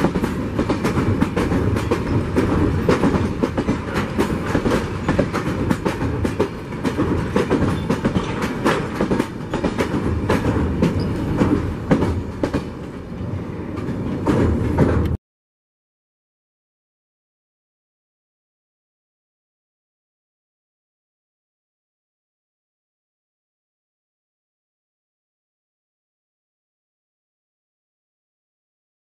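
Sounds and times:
clickety-clack of wheels on track: 0:00.0 - 0:15.2
train coaches rumbling past: 0:00.0 - 0:15.2.

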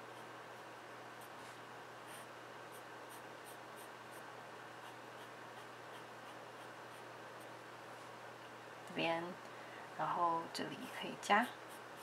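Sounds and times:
pencil scratching on paper: 0:10.8 - 0:12.0.

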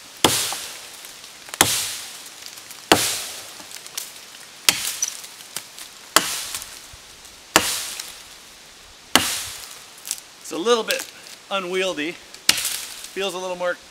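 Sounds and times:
axe chopping into wood: 0:00.2 - 0:00.7, 0:01.6 - 0:02.0, 0:02.9 - 0:03.7, 0:04.7 - 0:05.0, 0:06.2 - 0:06.6, 0:07.5 - 0:08.1, 0:09.1 - 0:09.6, 0:12.5 - 0:12.9.

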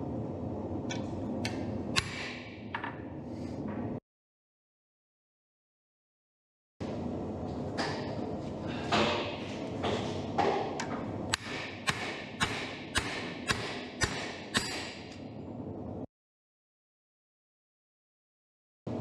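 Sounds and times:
hammer striking metal tool: 0:02.0 - 0:02.5, 0:11.3 - 0:15.2.

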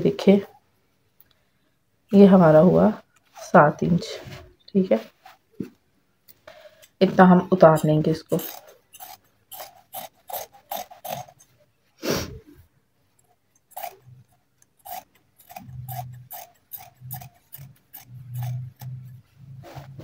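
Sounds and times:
scissors snipping cloth: 0:07.6 - 0:11.5, 0:13.2 - 0:19.2.

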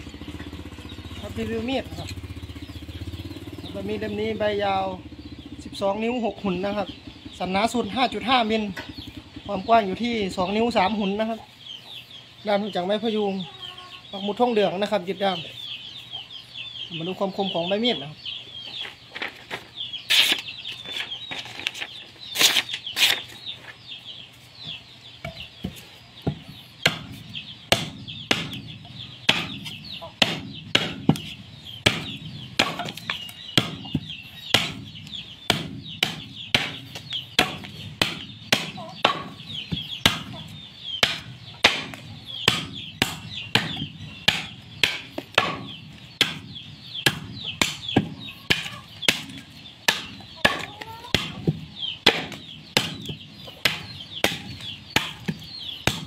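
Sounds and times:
knife chopping bamboo: 0:25.2 - 0:56.0.

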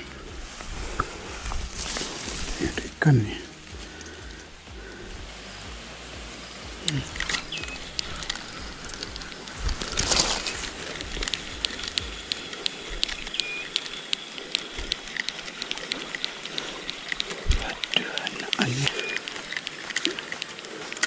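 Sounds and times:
rustle: 0:00.1 - 0:18.1
spinning reel clicking: 0:07.1 - 0:21.0.

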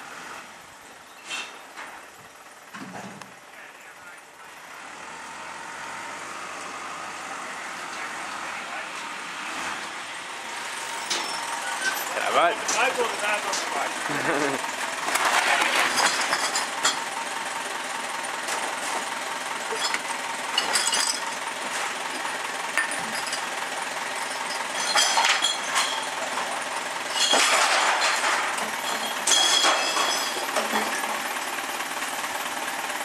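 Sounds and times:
truck engine idling: 0:00.1 - 0:33.0
glass bottles crashing: 0:11.0 - 0:13.7, 0:15.0 - 0:17.0, 0:19.7 - 0:21.5, 0:22.1 - 0:31.1.

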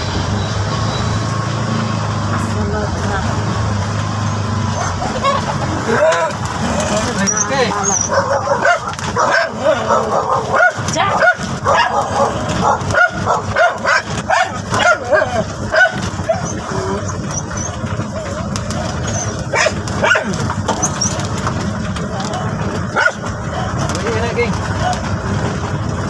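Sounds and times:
three-wheeler engine running: 0:00.0 - 0:26.0
dog barking: 0:04.7 - 0:05.7, 0:07.8 - 0:16.6, 0:19.2 - 0:20.5, 0:22.9 - 0:23.8.

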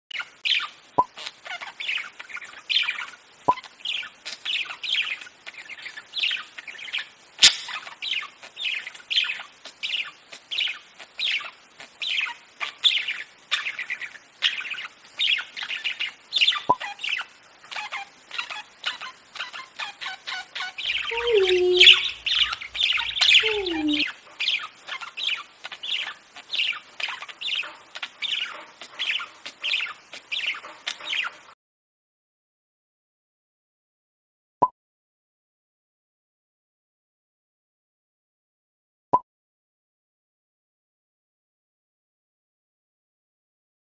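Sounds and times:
budgerigar chirping: 0:00.2 - 0:31.4
sharp bird clicks: 0:07.4 - 0:07.8.

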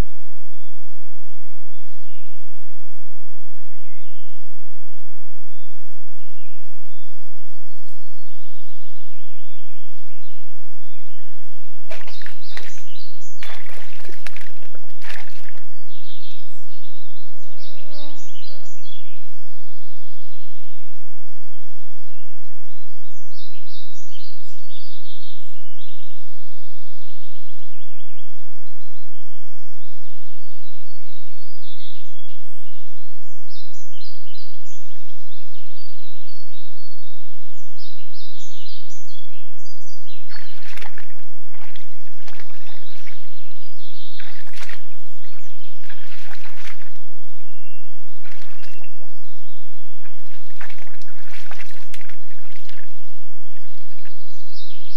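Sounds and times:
small birds singing: 0:03.7 - 0:04.4, 0:05.5 - 0:20.9, 0:21.5 - 0:54.9
animals splashing in mud: 0:11.9 - 0:16.2, 0:40.3 - 0:49.2, 0:50.0 - 0:54.4.

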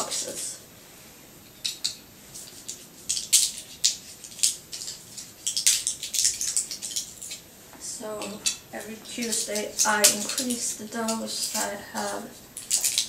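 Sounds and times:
tablets crackling out of blister pack: 0:08.8 - 0:13.0.

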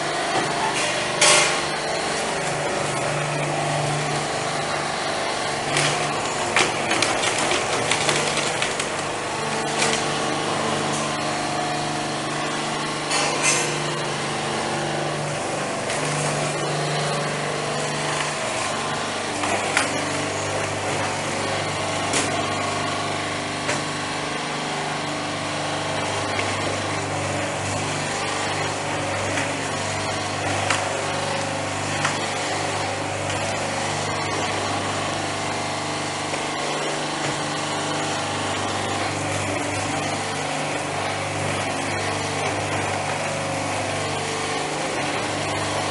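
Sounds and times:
husk cracking and clattering: 0:05.8 - 0:10.0.

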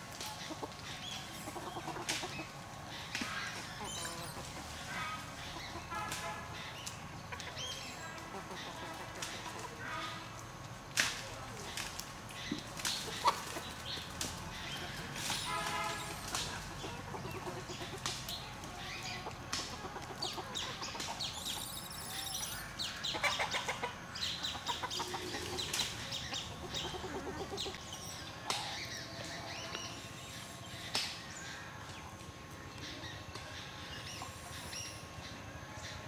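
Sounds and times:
rustles: 0:00.0 - 0:23.5.

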